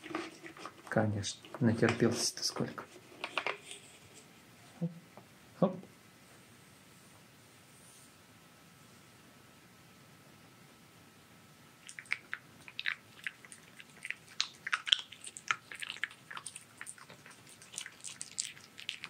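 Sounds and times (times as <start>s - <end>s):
fox chewing crunchily: 11.8s - 19.0s.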